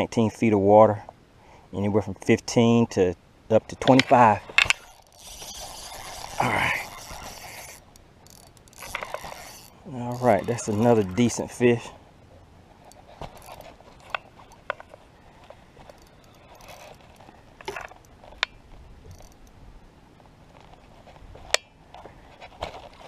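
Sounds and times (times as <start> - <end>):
fishing reel clicks and knocks: 4.0 - 11.3, 12.8 - 14.9, 15.8 - 19.6.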